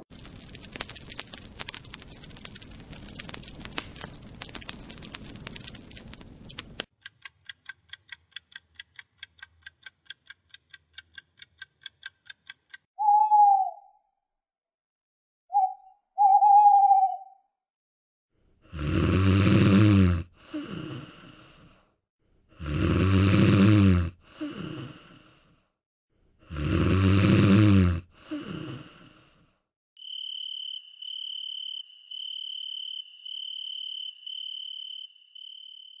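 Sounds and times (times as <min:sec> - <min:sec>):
owl hooting: 0:13.0 - 0:14.1, 0:15.5 - 0:17.4
person snoring: 0:18.7 - 0:21.8, 0:22.5 - 0:25.6, 0:26.4 - 0:29.5.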